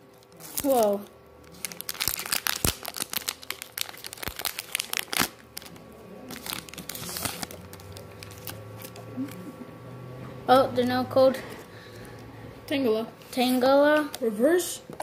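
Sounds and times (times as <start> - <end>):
foil wrapper crinkling: 0.0 - 9.3
wrapper rustling: 0.0 - 9.3.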